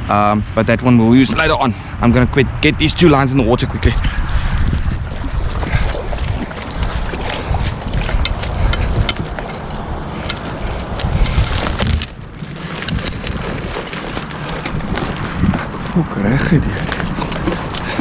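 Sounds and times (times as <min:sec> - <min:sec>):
wind noise on microphone: 0:00.0 - 0:18.0
reeds brushing and crackling: 0:05.0 - 0:18.0.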